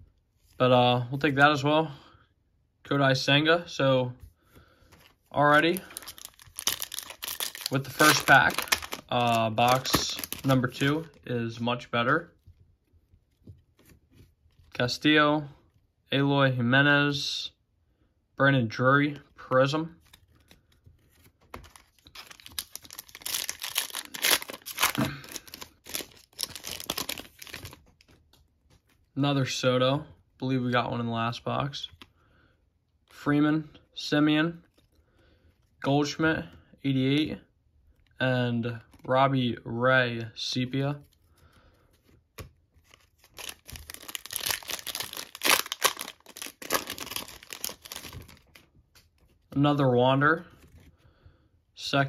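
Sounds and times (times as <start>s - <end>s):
foil wrapper crinkling and tearing: 5.5s - 11.2s, 21.6s - 28.1s, 42.8s - 48.6s.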